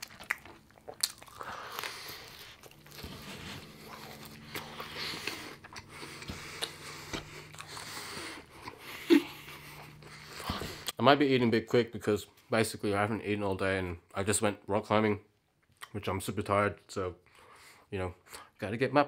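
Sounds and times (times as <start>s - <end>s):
lip smacks: 0.0s - 2.8s, 4.0s - 11.0s
chewing crunchy fries: 0.0s - 11.0s.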